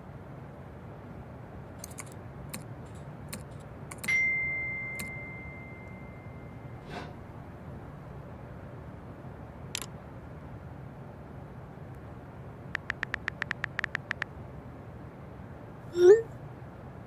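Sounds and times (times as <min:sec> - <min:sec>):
light clicks: 0:01.8 - 0:04.2, 0:09.7 - 0:09.9, 0:12.7 - 0:14.3
phone notification ding: 0:04.1 - 0:06.6.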